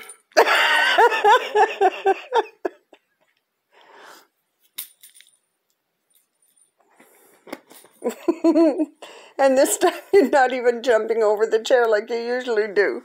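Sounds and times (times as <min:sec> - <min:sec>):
woman laughing: 0:00.4 - 0:03.1, 0:08.0 - 0:09.0.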